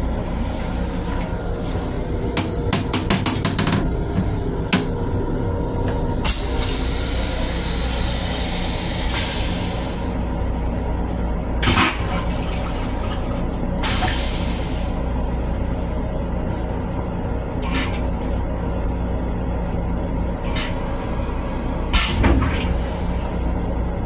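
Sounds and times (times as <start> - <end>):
toilet flushing water: 0.0 - 10.3, 11.5 - 15.8, 20.5 - 23.4
moving train rumble and hum: 0.0 - 24.0
toilet seat clicks and knocks: 2.4 - 4.9.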